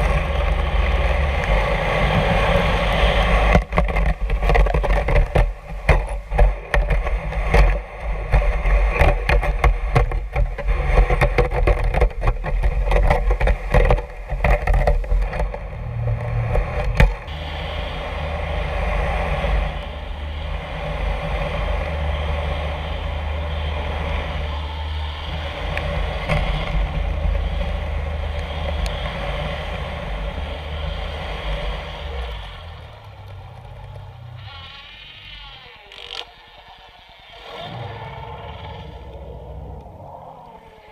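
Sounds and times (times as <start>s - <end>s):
low mechanical drone: 0.0s - 40.9s
dredge knocking and rattling underwater: 3.4s - 17.3s.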